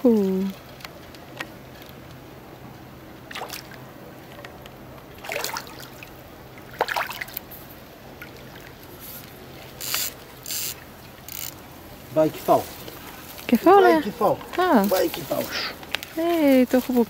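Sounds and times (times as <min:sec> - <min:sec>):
fish splashing at water surface: 0:03.3 - 0:03.8, 0:05.1 - 0:10.9.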